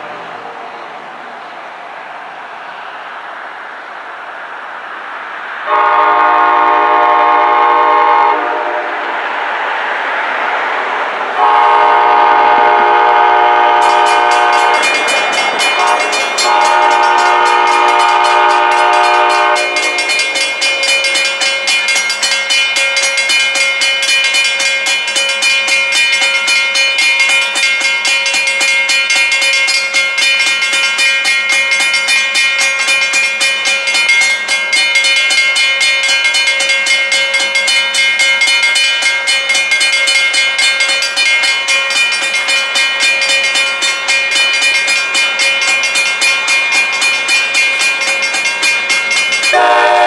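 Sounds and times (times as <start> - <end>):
steady rail noise: 0.0 - 50.0
train air horn blasts: 5.7 - 9.1, 11.4 - 15.1, 15.7 - 20.4, 49.5 - 50.0.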